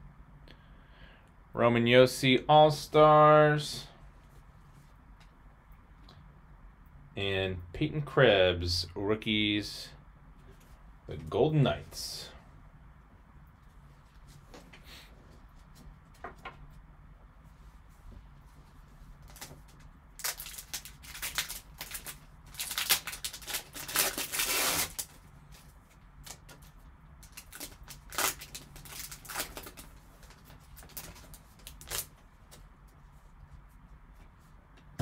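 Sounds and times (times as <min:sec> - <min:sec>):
foil wrapper crinkling and tearing: 0:19.2 - 0:32.2.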